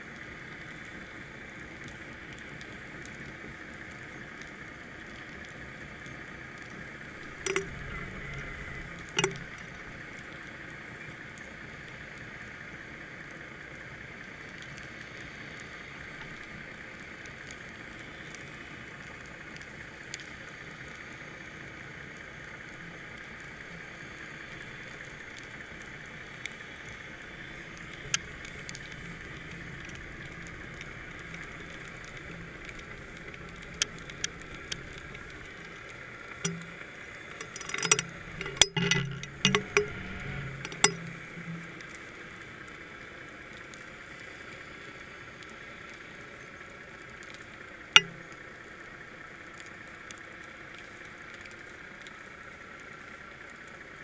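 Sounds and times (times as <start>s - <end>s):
muffled underwater hiss: 0.0s - 38.7s
sharp clicks and knocks: 7.2s - 9.9s, 27.8s - 42.0s, 48.0s - 48.4s.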